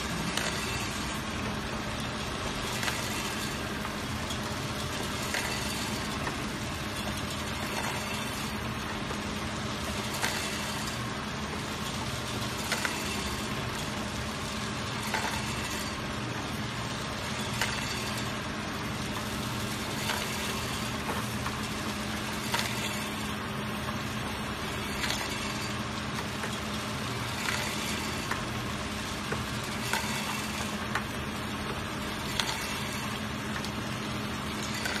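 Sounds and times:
motor hum: 0.0s - 35.0s
capsules rattling in a bowl: 19.0s - 35.0s.

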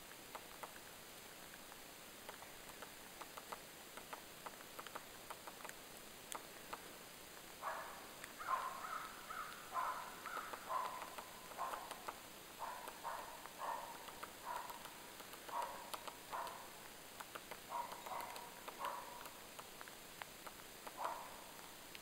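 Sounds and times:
woodpecker tapping on bark: 0.1s - 6.9s, 7.6s - 22.0s
short harsh bird calls: 7.8s - 12.0s.

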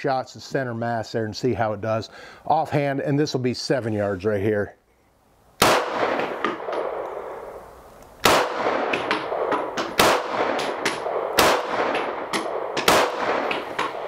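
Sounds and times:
pistol shots with echo: 5.6s - 7.5s, 8.2s - 14.0s
sharp clicks: 8.0s - 14.0s.

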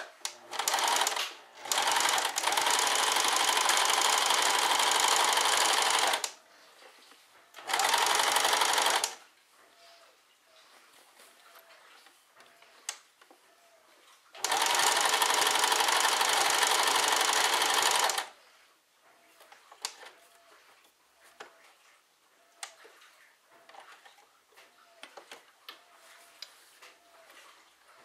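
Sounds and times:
sewing machine stitching: 0.0s - 6.4s, 7.5s - 9.2s, 14.4s - 18.4s.

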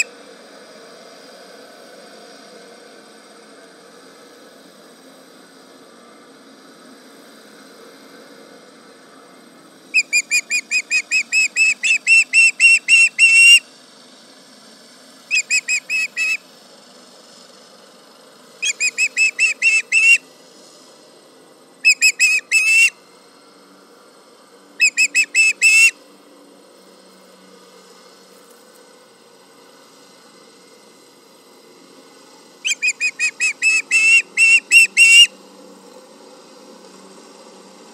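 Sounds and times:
bird high whistled chirps: 10.0s - 13.6s, 15.3s - 16.4s, 18.6s - 20.2s, 21.8s - 23.0s, 24.8s - 26.0s, 32.6s - 35.3s.

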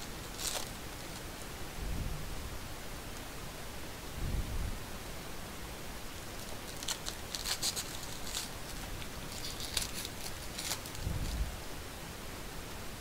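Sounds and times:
foil wrapper crinkling: 0.0s - 1.3s, 6.3s - 11.5s
steady background hiss: 0.0s - 13.0s.

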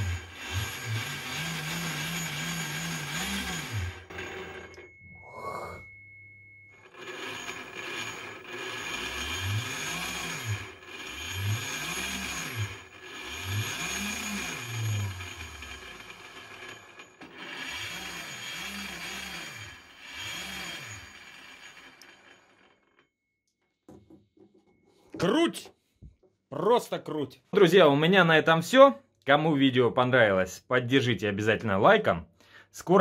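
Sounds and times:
electric motor revving: 0.0s - 4.8s, 6.8s - 22.7s.

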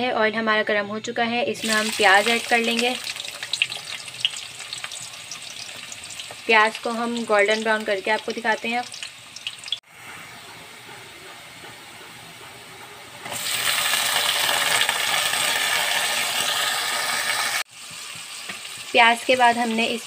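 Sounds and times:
onions sizzling in hot oil: 1.6s - 10.4s, 13.2s - 20.0s.

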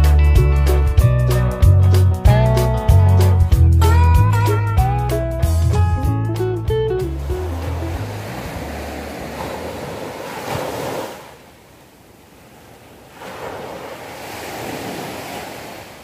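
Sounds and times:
waves washing onto shore: 7.1s - 16.0s.

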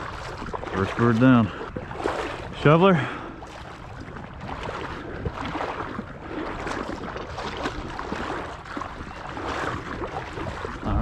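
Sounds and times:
water sloshing while wading: 0.0s - 11.0s.

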